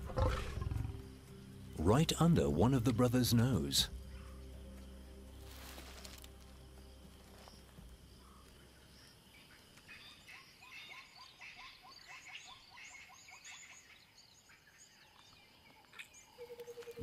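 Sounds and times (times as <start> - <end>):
birds calling: 7.0 - 17.0.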